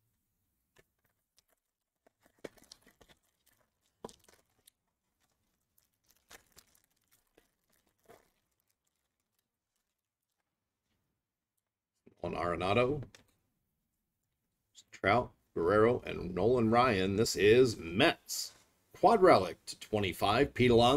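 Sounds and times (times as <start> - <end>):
foil pack crinkling and tearing: 0.8 - 10.5.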